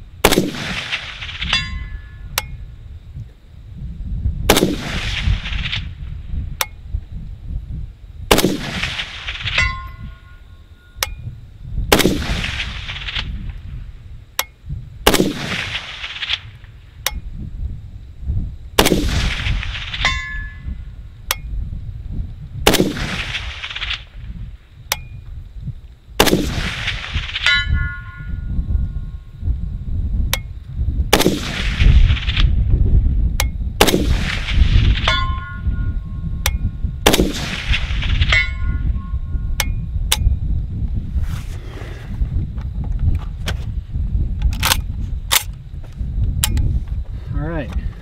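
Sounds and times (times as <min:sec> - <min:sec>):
rifle shots with echo: 0:00.2 - 0:01.7, 0:04.5 - 0:05.8, 0:08.3 - 0:09.9, 0:11.9 - 0:13.3, 0:15.1 - 0:16.5, 0:18.8 - 0:20.6, 0:22.6 - 0:24.1, 0:26.2 - 0:27.5, 0:31.1 - 0:32.5, 0:33.8 - 0:35.4, 0:37.0 - 0:38.6
faint metallic ring of steel target: 0:01.4 - 0:02.6, 0:09.4 - 0:11.4, 0:20.0 - 0:21.6, 0:24.9 - 0:25.2, 0:27.4 - 0:28.6, 0:35.0 - 0:36.8, 0:38.3 - 0:40.3.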